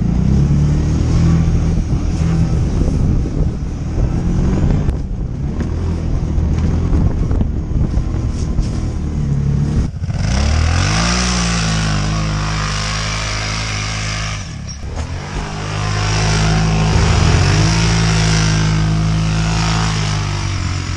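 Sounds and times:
atv engine revving: 0.0s - 7.2s, 9.4s - 20.9s.

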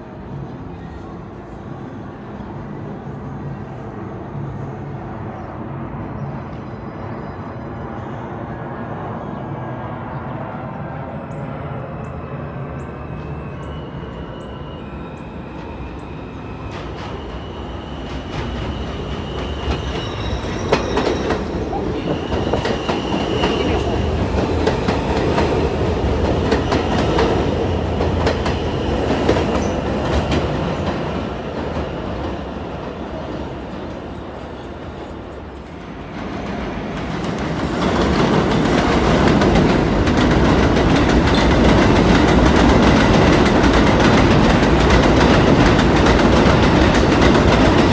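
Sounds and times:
train wheels clacking: 16.7s - 32.4s, 36.4s - 47.9s
high-pitched wheel squeal: 18.7s - 23.8s.

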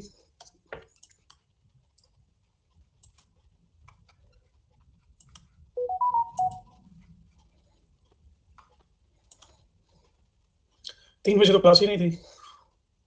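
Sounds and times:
electronic notification chime: 5.8s - 6.6s.

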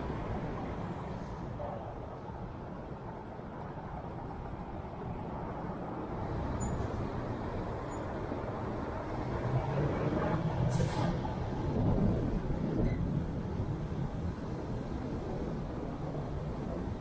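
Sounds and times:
car engine and road noise: 0.0s - 17.0s
brief hiss: 10.7s - 11.2s.

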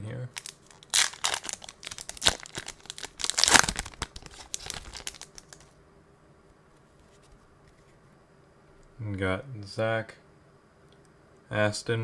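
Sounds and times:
foil wrapper tearing and crinkling: 0.4s - 5.7s.

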